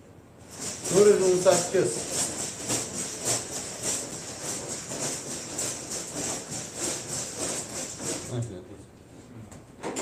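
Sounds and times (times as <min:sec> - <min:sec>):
paper tickets shaken in cloth bag: 0:00.5 - 0:08.3.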